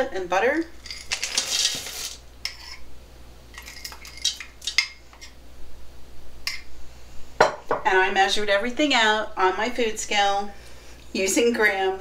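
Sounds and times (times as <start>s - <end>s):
spoon scraping bowls: 0.8s - 2.8s.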